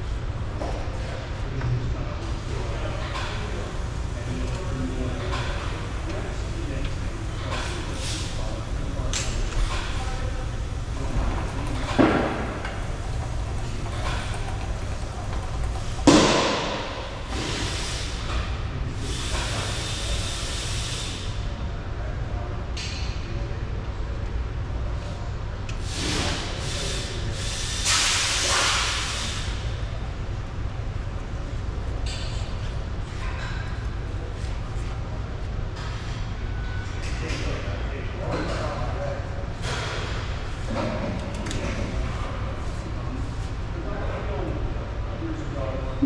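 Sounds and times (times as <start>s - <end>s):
steady low hum: 0.0s - 27.8s.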